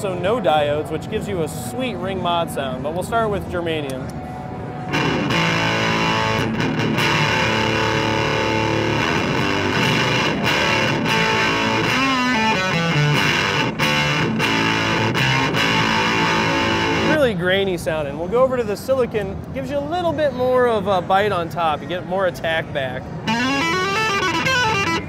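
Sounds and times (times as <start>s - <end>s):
distorted fuzz electric guitar: 4.8s - 17.2s, 23.2s - 25.0s.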